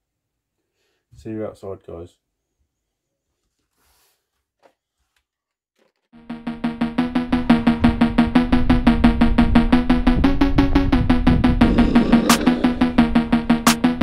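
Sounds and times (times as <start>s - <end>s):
sustained low tone: 11.5s - 13.6s.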